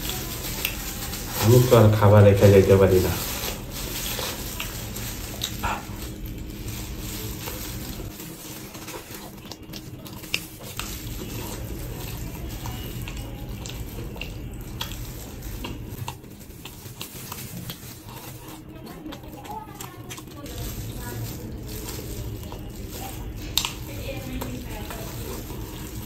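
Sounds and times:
plastic glove crinkles: 0.0s - 26.0s
man chewing and lip-smacking: 5.3s - 6.2s, 8.9s - 18.7s.

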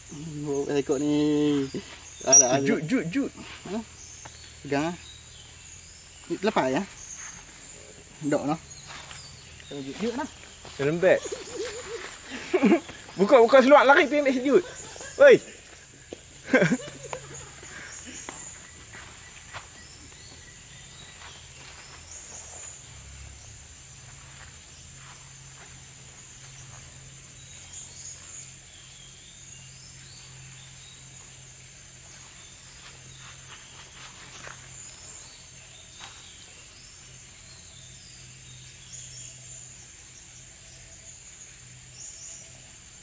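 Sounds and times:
insects droning: 0.0s - 43.0s.

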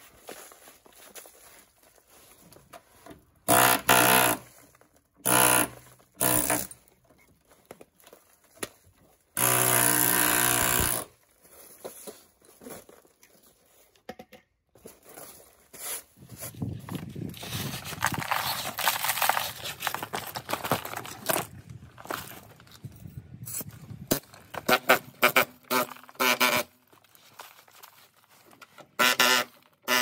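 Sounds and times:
power tool running: 5.2s - 6.7s, 9.4s - 11.1s
clicks and handling noises: 6.7s - 9.4s, 11.2s - 30.0s.

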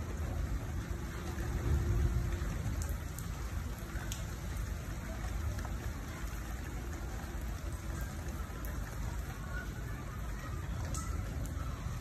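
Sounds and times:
rain on wet pavement: 0.0s - 12.0s.

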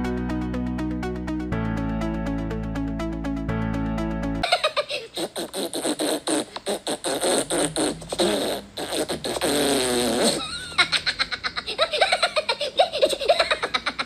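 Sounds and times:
high-pitched wavering laugh: 4.4s - 5.5s, 10.2s - 14.0s
cartoon raspberry noises: 4.4s - 11.2s.

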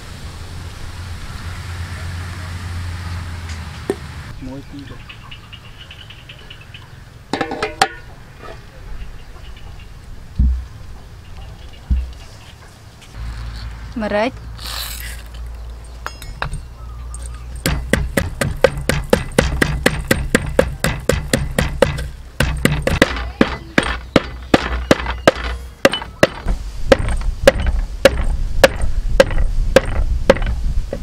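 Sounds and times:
pestle pounding in wooden mortar: 17.6s - 31.0s.

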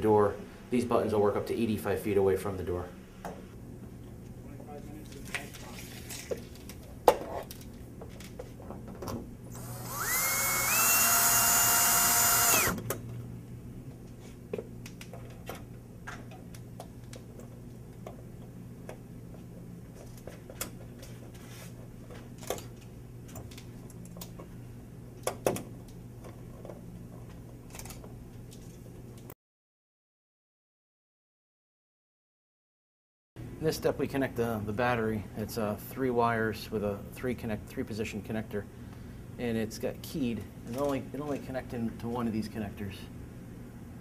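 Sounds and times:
power drill whining: 9.5s - 12.8s.

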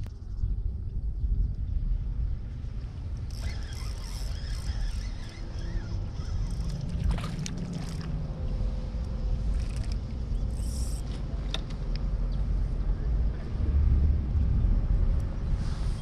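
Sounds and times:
steady low rumble: 0.0s - 16.0s
water sloshing and splashing: 3.4s - 8.6s.

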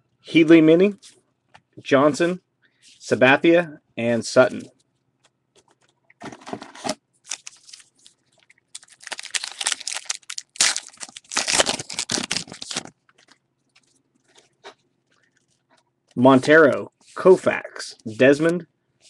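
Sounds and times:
card pack wrapper crinkling: 6.8s - 14.5s.

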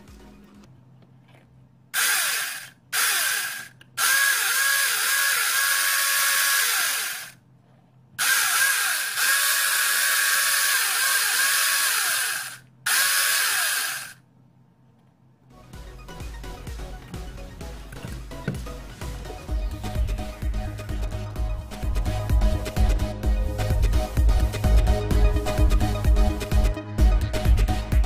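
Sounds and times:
electric chainsaw whining: 2.0s - 7.4s, 8.2s - 14.2s.

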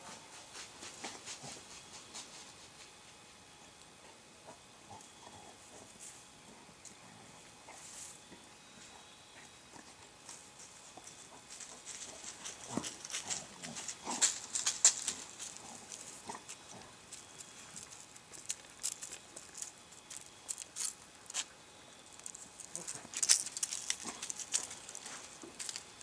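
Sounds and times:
dry grass crackling under dog: 10.2s - 26.0s.

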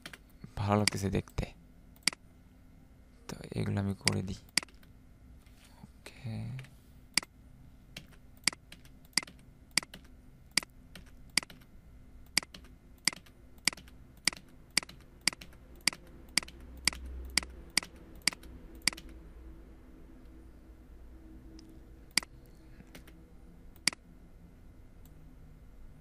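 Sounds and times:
computer keyboard key presses: 8.0s - 11.6s, 12.3s - 19.2s.

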